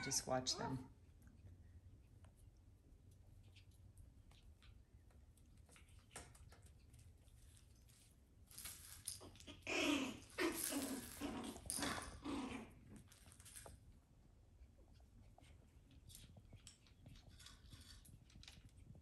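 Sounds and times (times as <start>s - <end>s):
claws scrabbling on tile floor: 2.2s - 19.0s
puppies growling and yapping: 9.2s - 13.6s.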